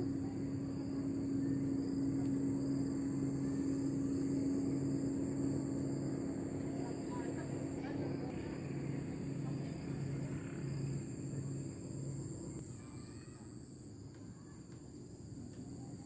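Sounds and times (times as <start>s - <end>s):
low hum: 0.0s - 12.6s
high-pitched insect buzz: 0.0s - 13.9s.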